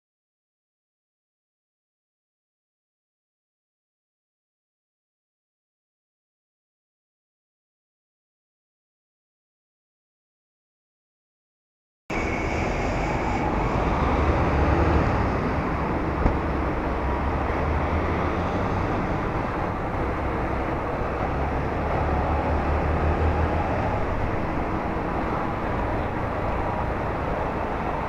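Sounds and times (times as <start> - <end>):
road and wind noise: 12.1 - 28.0.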